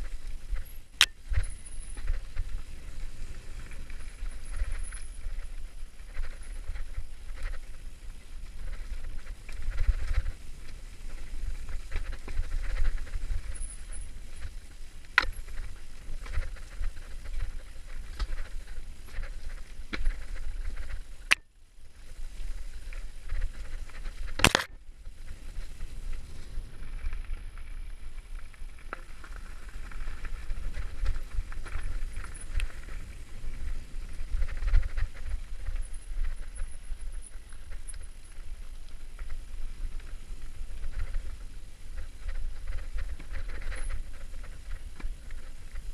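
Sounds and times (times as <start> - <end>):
bike tyres rumbling on dirt: 0.0 - 45.9
rattles and knocks over stones: 24.0 - 24.8
sharp click: 24.4 - 24.8.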